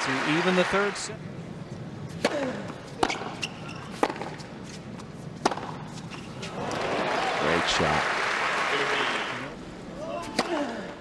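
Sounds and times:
tennis ball bouncing on hard court: 0:02.2 - 0:06.2.

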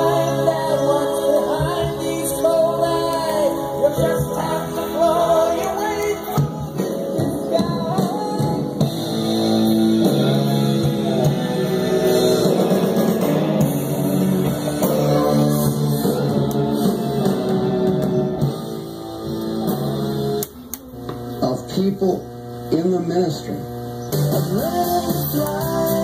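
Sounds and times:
song from vinyl record: 0:00.0 - 0:26.0.

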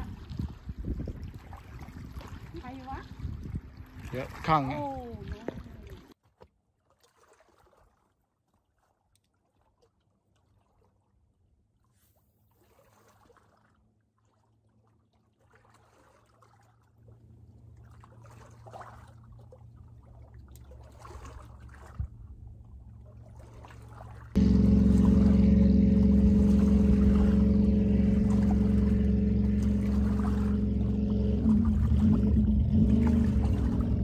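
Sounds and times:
water lapping against rocky shore: 0:00.0 - 0:11.3, 0:12.5 - 0:34.0
low steady rumble: 0:17.1 - 0:34.0.

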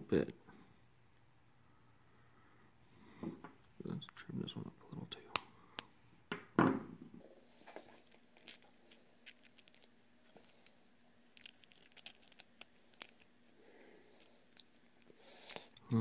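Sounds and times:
plastic parts clicking and scraping: 0:07.7 - 0:13.3.

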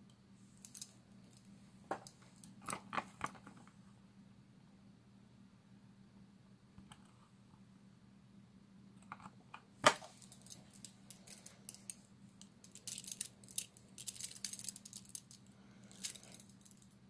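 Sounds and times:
handcuff chain jingling and clinking: 0:10.1 - 0:12.0, 0:12.6 - 0:16.9.

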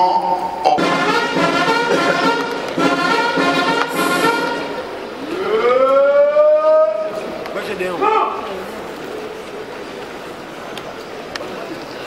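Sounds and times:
brass instruments playing held notes: 0:00.0 - 0:07.2.

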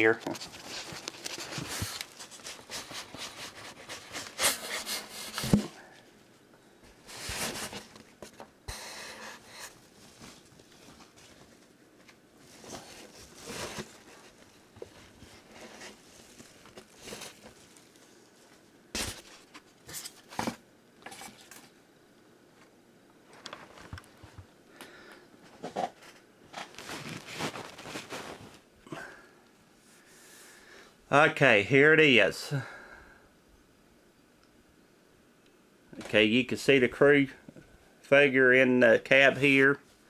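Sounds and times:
cardboard and styrofoam scraping: 0:00.3 - 0:05.8, 0:07.1 - 0:08.0, 0:12.4 - 0:17.8, 0:25.6 - 0:28.6.

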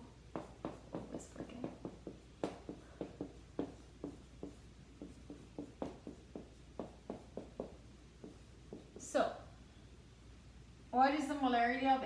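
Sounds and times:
marker writing on whiteboard: 0:00.1 - 0:09.2.

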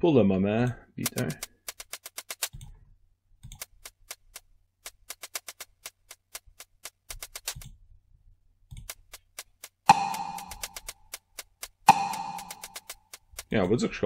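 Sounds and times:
hi-hat drum loop ticking: 0:09.9 - 0:13.6.

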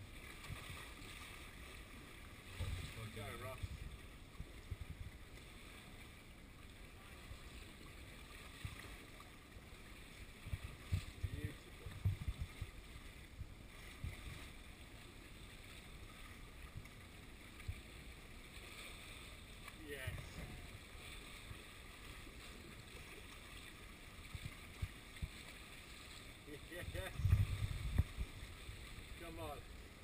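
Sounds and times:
gusty wind and sea: 0:00.0 - 0:06.3, 0:10.0 - 0:14.9, 0:23.6 - 0:30.0.

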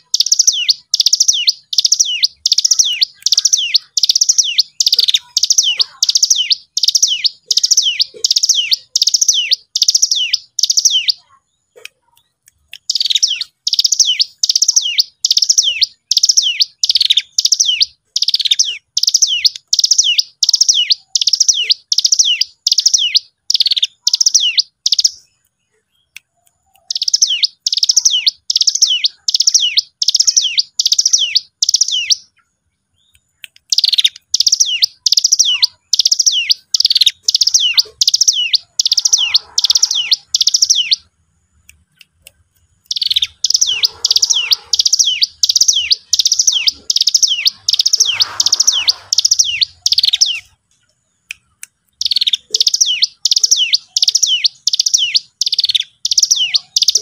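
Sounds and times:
bird chip notes: 0:41.7 - 0:50.6.

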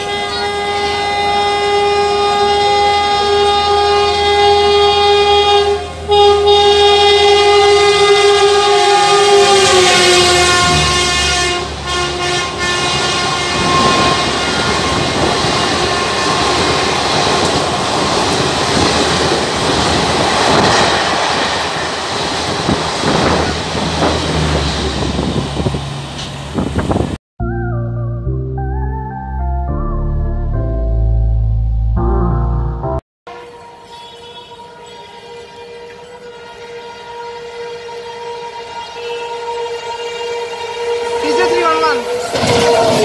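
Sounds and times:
locomotive horn blasting: 0:00.0 - 0:17.5, 0:22.7 - 0:24.6, 0:33.2 - 0:43.0
train wheels clattering over rail joints: 0:14.7 - 0:25.5.

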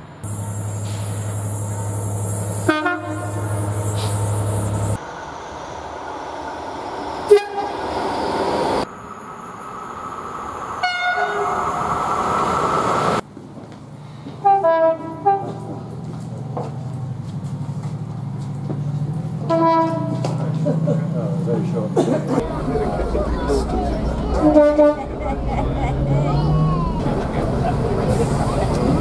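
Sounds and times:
diesel locomotive engine running: 0:00.0 - 0:29.0
train horn blasts: 0:02.6 - 0:03.6, 0:07.3 - 0:07.7, 0:10.8 - 0:11.6, 0:14.4 - 0:15.8, 0:19.4 - 0:20.4, 0:24.3 - 0:25.1.

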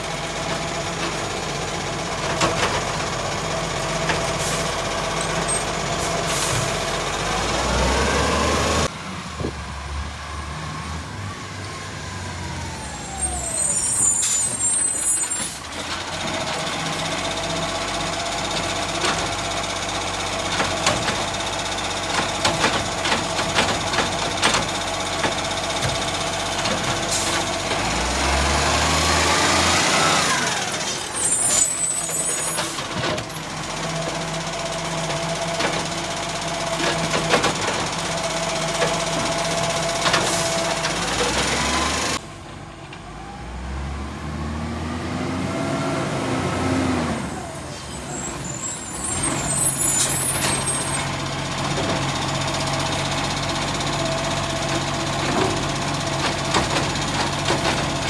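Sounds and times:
garbage truck engine: 0:00.0 - 0:58.0
air brake hiss: 0:06.0 - 0:06.7
clunks and knocks of bins: 0:55.2 - 0:58.0.

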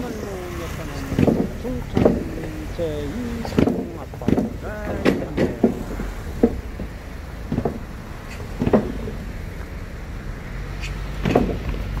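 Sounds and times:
low traffic rumble: 0:00.0 - 0:12.0
dull knocks: 0:01.0 - 0:02.5, 0:03.4 - 0:09.3, 0:11.2 - 0:12.0.

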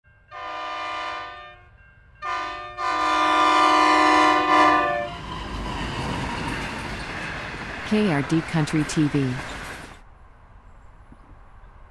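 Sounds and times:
locomotive air horn: 0:00.3 - 0:05.2.

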